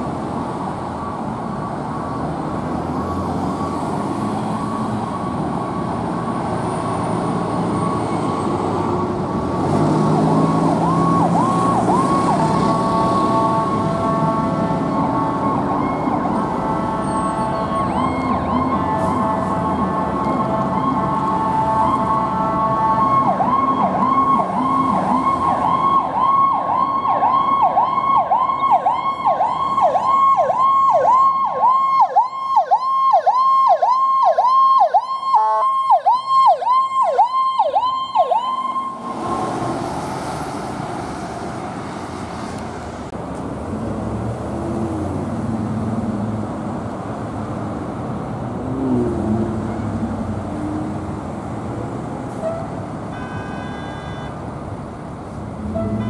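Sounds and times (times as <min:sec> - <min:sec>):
idling vehicles and traffic rumble: 0:00.0 - 0:56.0
electronic siren yelping: 0:10.2 - 0:39.5.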